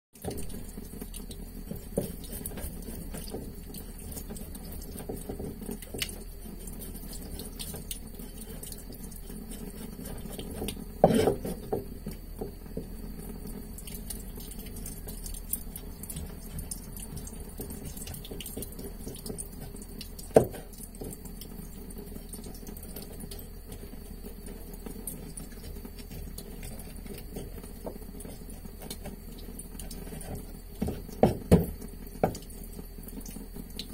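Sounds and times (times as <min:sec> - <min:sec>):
tap water running onto board: 0:00.2 - 0:33.9
knife scraping fish: 0:01.7 - 0:11.8
knife knocking on wooden board: 0:11.0 - 0:11.9, 0:30.8 - 0:32.4.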